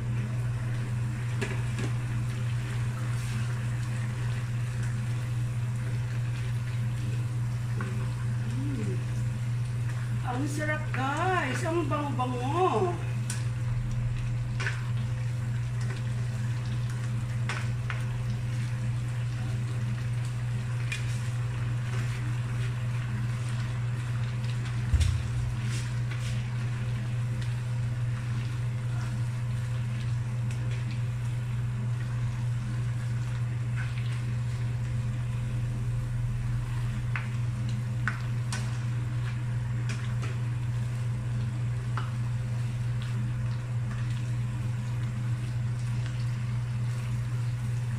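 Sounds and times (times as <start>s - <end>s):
steady low hum: 0.0s - 47.9s
loud thump: 24.9s - 25.7s.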